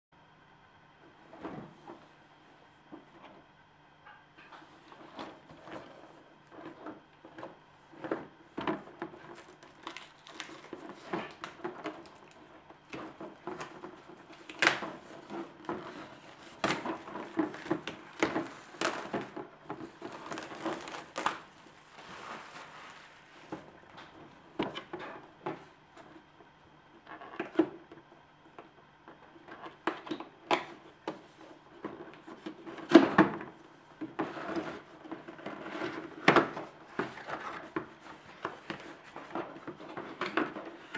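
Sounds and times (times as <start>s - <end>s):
plastic wrap crinkling and tearing: 9.2s - 23.5s.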